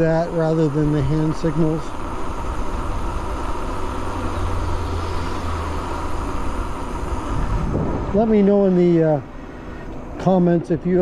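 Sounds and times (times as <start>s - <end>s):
tyres rolling on pavement: 0.0s - 11.0s
wind on microphone: 7.2s - 8.3s.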